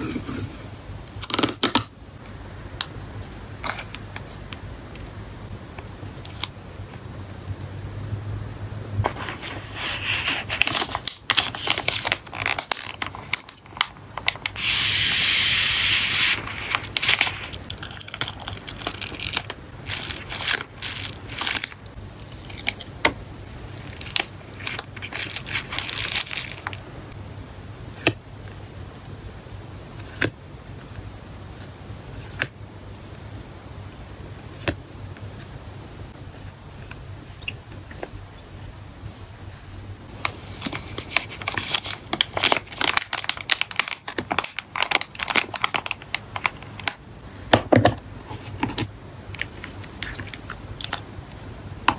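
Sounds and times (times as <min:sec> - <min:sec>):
plastic packaging crinkling: 0:09.1 - 0:15.2, 0:15.8 - 0:23.0, 0:23.7 - 0:26.9, 0:40.1 - 0:47.0.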